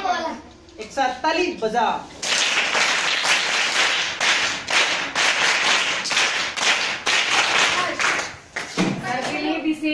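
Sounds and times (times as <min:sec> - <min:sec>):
group of people clapping: 0:02.2 - 0:08.8.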